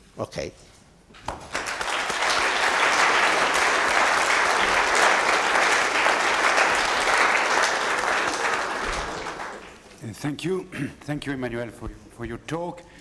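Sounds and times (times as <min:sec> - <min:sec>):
audience applauding: 0:01.2 - 0:09.9.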